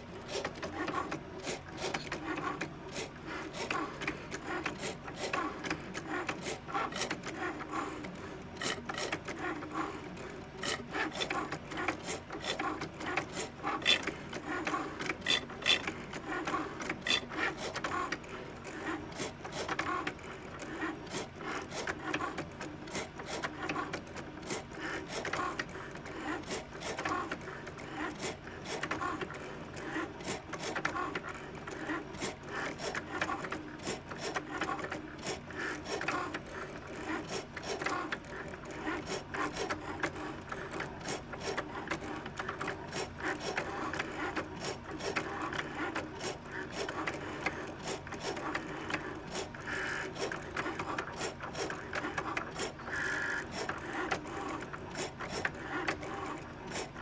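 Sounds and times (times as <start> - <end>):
rapid irregular clicks: 0.0 - 57.0.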